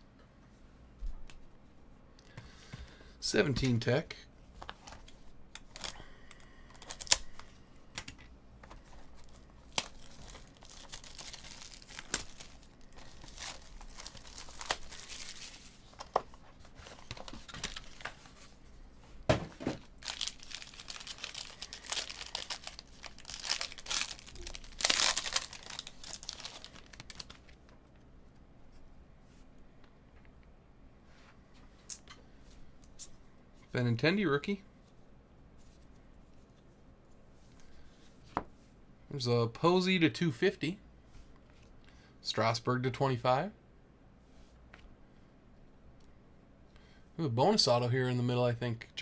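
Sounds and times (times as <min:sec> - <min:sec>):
plastic wrap crinkling: 0:05.6 - 0:07.5, 0:08.7 - 0:18.4, 0:19.7 - 0:27.7
foil pack tearing and crinkling: 0:06.7 - 0:07.4, 0:09.2 - 0:15.8, 0:19.8 - 0:27.5.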